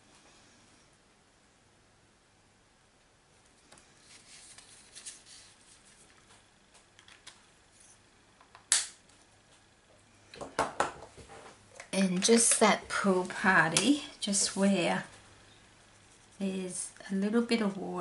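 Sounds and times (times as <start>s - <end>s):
card stock rustling: 4.0s - 6.4s.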